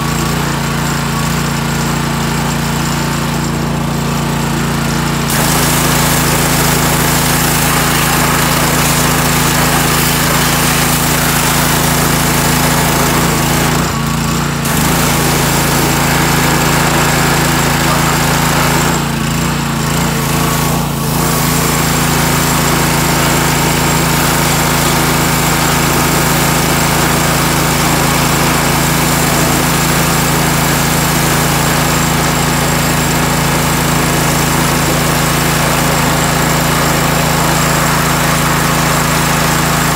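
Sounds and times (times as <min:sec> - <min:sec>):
small gas engine running: 0:00.0 - 0:39.9
high-pressure water spray hiss: 0:05.3 - 0:14.0, 0:14.6 - 0:19.0, 0:20.1 - 0:32.0.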